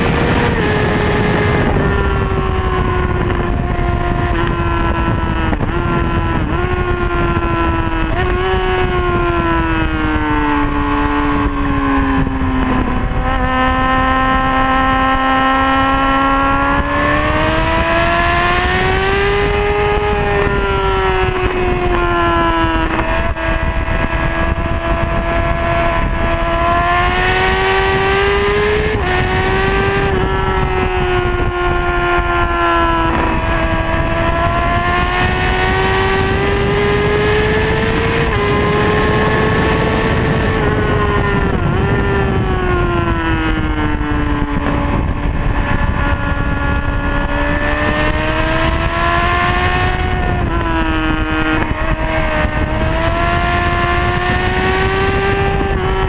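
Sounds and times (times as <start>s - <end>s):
motorcycle engine at high revs: 0.0s - 56.0s
steady rushing noise: 15.7s - 56.0s.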